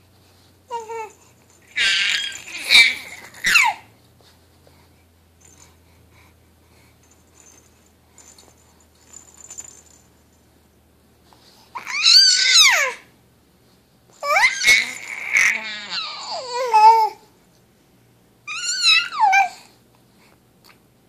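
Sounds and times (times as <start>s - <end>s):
faint rustling: 0.0s - 11.8s
infant squealing: 0.7s - 3.8s, 11.8s - 13.0s, 14.2s - 17.1s, 18.5s - 19.6s.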